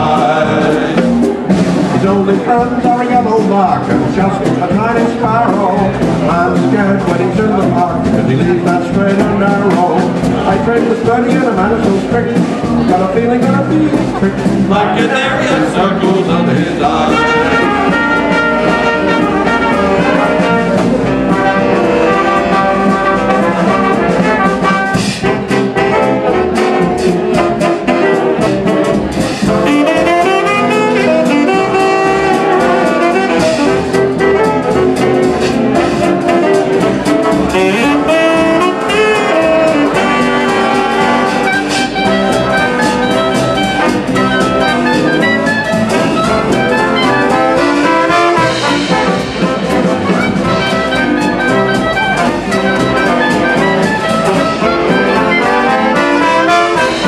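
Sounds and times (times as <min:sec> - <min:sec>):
trombone: 0:00.0 - 0:57.0
upright bass: 0:00.0 - 0:57.0
saxophones: 0:14.1 - 0:57.0
trumpets: 0:14.2 - 0:57.0.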